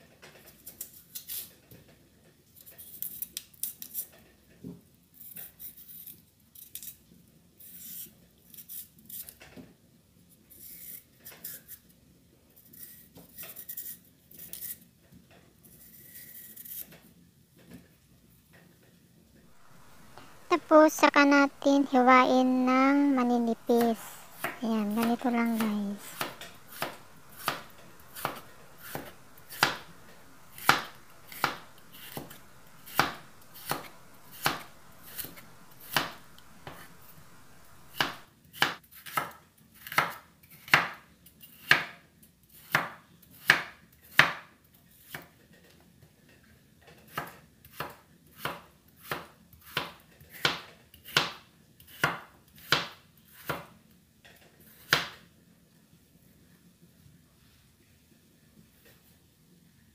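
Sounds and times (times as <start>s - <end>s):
knife chopping on wooden board: 19.6s - 20.5s, 23.5s - 38.8s.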